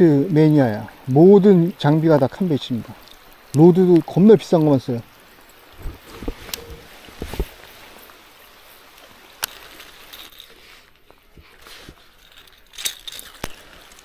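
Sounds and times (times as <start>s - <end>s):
rain hissing on a lake: 0.0s - 14.0s.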